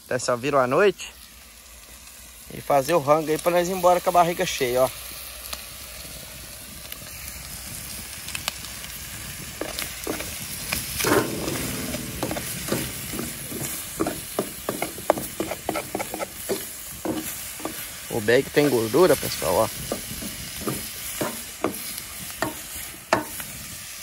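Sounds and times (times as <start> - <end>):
meat sizzling in a pot: 0.0 - 24.0
metal utensil scraping pot: 11.0 - 23.4.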